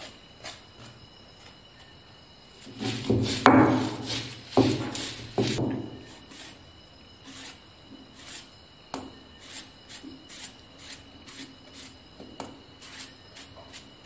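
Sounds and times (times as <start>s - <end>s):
stone roller rasping on slab: 2.7s - 5.6s.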